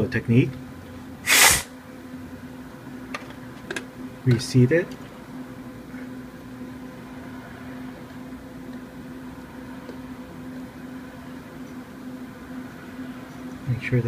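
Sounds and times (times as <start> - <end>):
faint hiss: 1.3 - 1.7.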